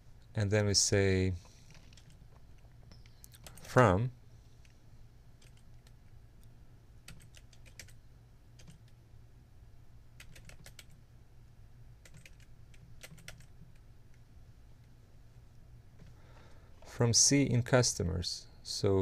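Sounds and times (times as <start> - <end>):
low steady hum: 0.0 - 19.0
faint keyboard typing: 1.4 - 4.8, 5.4 - 9.0, 10.2 - 11.0, 12.0 - 14.9.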